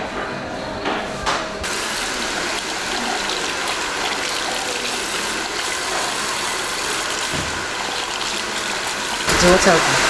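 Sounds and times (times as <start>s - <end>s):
water spraying onto hair: 7.2s - 10.0s.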